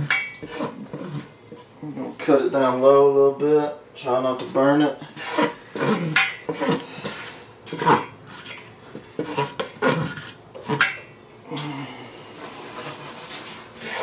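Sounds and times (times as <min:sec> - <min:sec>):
spoon scraping a metal pot: 0:00.0 - 0:01.7, 0:04.4 - 0:11.1, 0:12.4 - 0:14.0.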